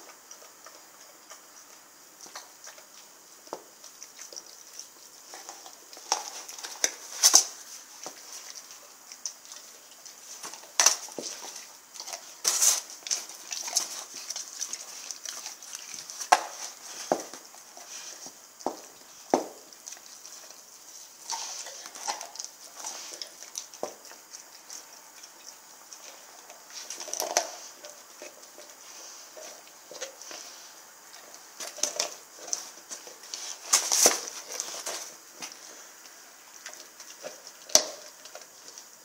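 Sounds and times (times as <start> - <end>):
dog chewing and crunching: 0.0 - 39.0.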